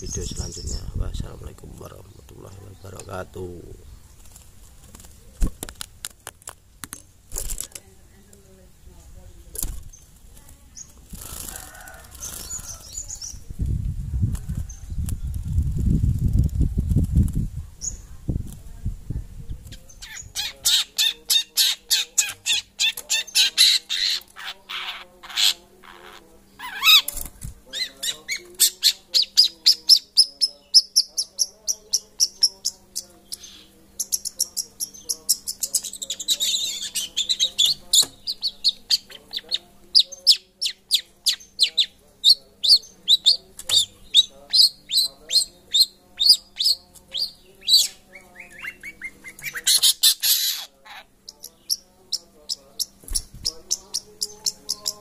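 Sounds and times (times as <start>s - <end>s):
harsh bird chattering: 19.8s - 55.0s.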